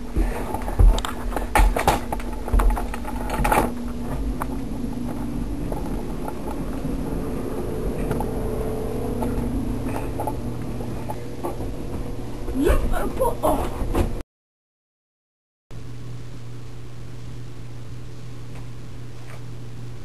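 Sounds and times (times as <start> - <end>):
mechanical hum with low drone: 0.0 - 14.2, 15.7 - 20.0.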